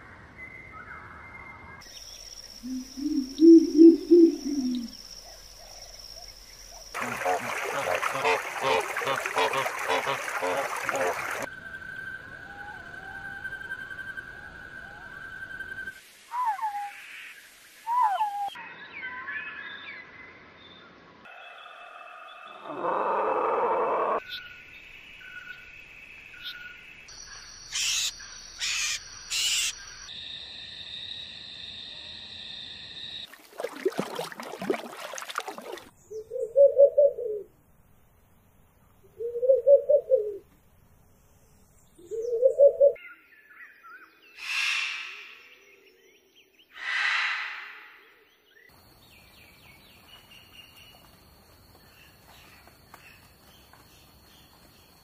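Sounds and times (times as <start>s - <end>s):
thin whistled bird calls: 0.4s - 6.9s, 11.5s - 17.2s, 17.8s - 19.9s, 42.0s - 48.7s
owl hooting: 2.6s - 5.0s, 16.3s - 17.0s, 17.9s - 18.6s, 36.2s - 37.5s, 39.2s - 40.4s, 42.1s - 43.0s, 44.4s - 45.6s, 46.8s - 48.1s
faint high whistle: 11.5s - 17.0s
owl hissing screeches: 44.4s - 45.6s, 46.8s - 48.2s.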